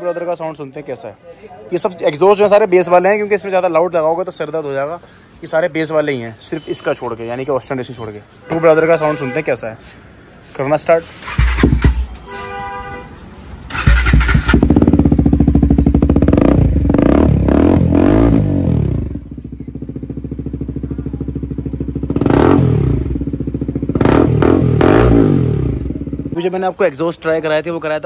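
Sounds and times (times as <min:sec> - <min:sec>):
motorcycle engine revving and idling: 0:11.2 - 0:12.1, 0:13.7 - 0:26.4.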